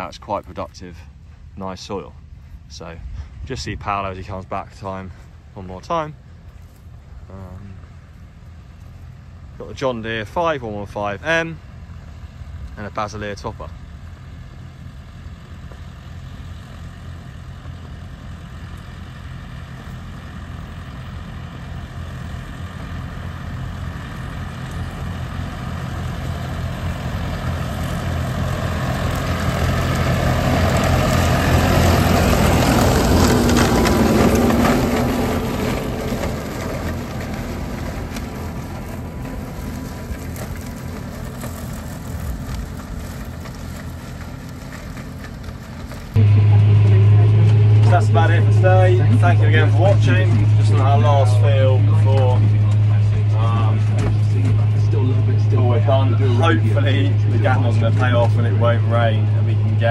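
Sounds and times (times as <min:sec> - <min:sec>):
tractor diesel engine running: 0:00.0 - 0:59.9
topper rushing: 0:20.0 - 0:59.9.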